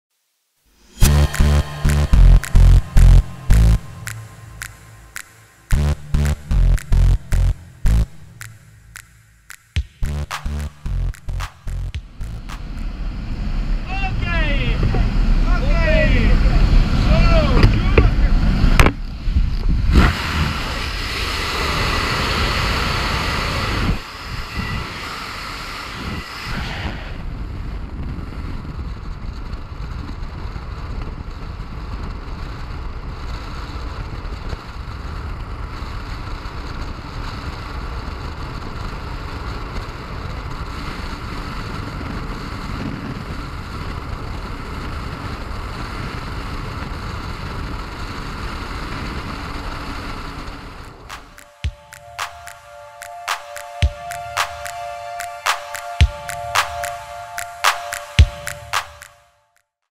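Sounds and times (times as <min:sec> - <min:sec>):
wind rushing over microphone: 0:12.6 - 0:51.3.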